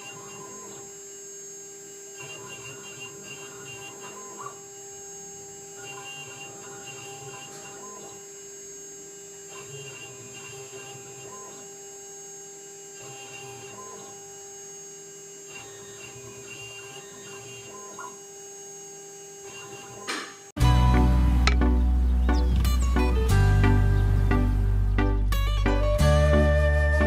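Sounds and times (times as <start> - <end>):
engraving machine spindle whine: 0.0 - 20.6
low buzz: 0.0 - 27.0.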